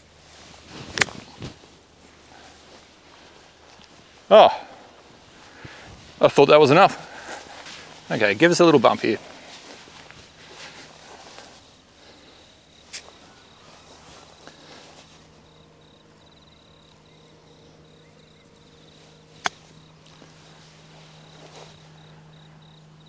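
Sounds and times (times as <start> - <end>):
high pulsing insect call: 0.8 - 23.0
golf club striking ball: 19.4 - 19.8.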